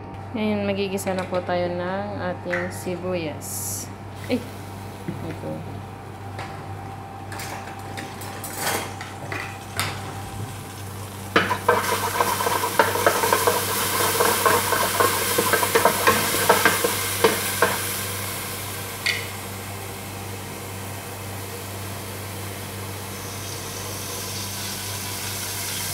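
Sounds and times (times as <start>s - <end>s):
hot oil sizzling: 9.4s - 25.9s.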